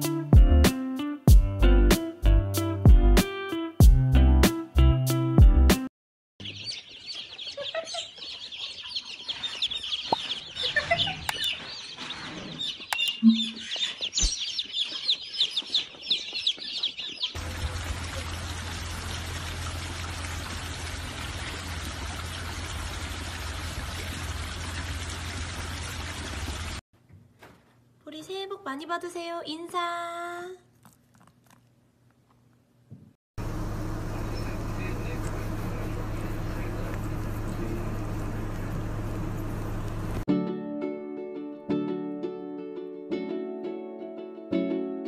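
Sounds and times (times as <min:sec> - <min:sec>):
baby chicks peeping: 0:06.4 - 0:17.4
low hum: 0:33.4 - 0:40.2.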